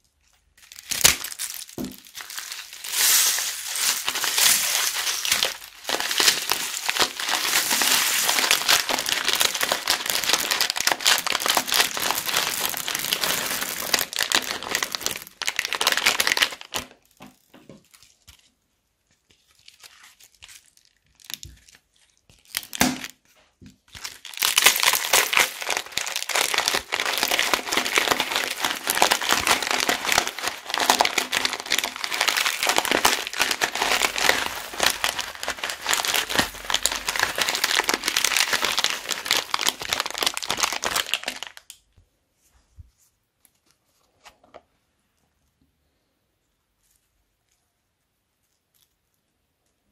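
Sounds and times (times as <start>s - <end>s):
plastic bags crinkling: 0.4s - 17.2s, 23.9s - 41.7s.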